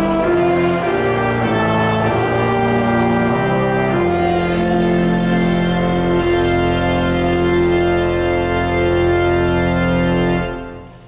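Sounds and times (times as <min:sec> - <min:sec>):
church organ playing chords: 0:00.0 - 0:11.0.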